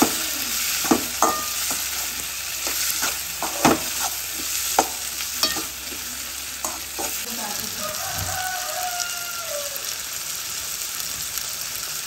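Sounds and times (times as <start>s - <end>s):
metal spatula scraping pan: 0.0s - 7.3s
vegetables sizzling in hot oil: 0.0s - 12.0s.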